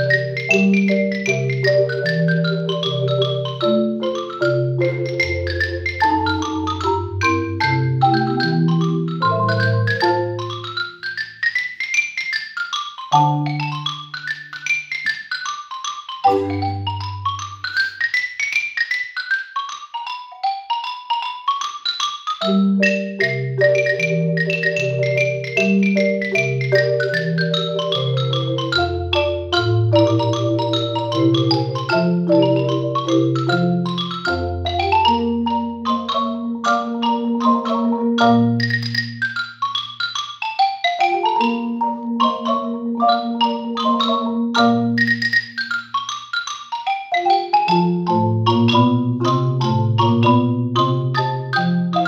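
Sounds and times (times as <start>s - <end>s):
marimba played with mallets: 0.0s - 52.0s.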